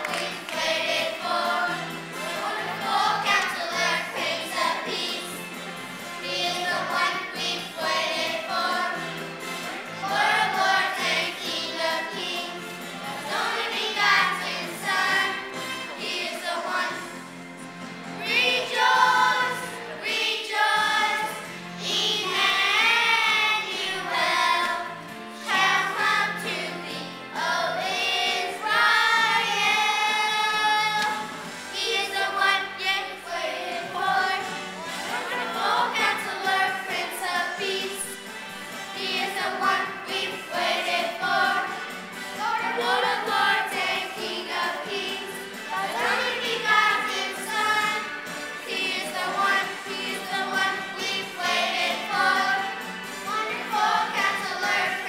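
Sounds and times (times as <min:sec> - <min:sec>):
children singing along: 0:00.0 - 0:05.5, 0:06.2 - 0:17.2, 0:18.2 - 0:38.2, 0:38.9 - 0:55.0.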